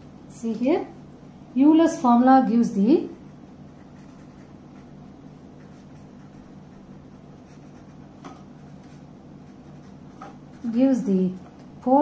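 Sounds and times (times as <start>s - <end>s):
pen scratching on paper: 3.0s - 11.1s.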